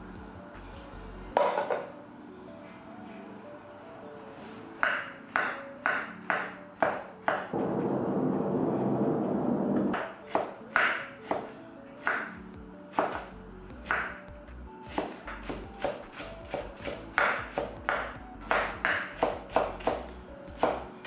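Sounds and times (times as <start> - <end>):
knife chopping on wooden board: 9.9 - 12.3, 12.9 - 13.3, 14.9 - 20.9.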